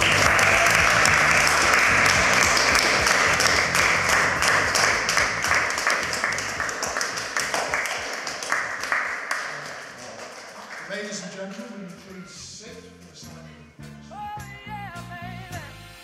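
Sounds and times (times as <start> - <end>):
crowd applauding: 0.0 - 12.3.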